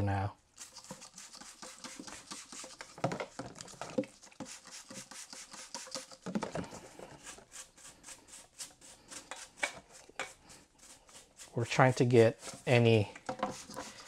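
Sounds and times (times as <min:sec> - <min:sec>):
paintbrush scrubbing metal: 0:00.5 - 0:14.0
spray bottle squirts: 0:00.6 - 0:06.5, 0:07.1 - 0:11.6, 0:13.3 - 0:14.0.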